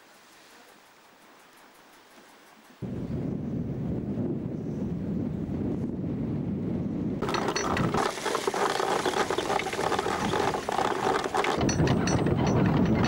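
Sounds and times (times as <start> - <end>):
low wind: 0.0 - 13.0
anchor chain rattling: 7.2 - 13.0.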